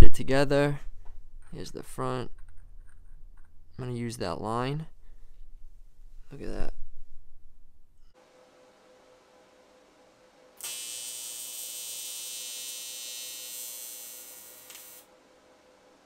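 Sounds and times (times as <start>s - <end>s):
faint welder hum: 10.6s - 15.1s
welding arc buzzing: 10.6s - 15.1s.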